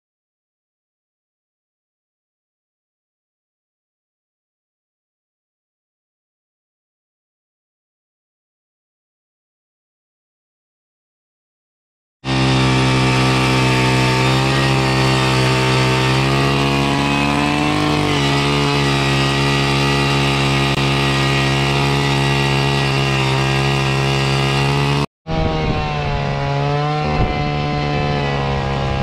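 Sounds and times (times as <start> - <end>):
ice auger engine drilling: 12.3 - 29.0.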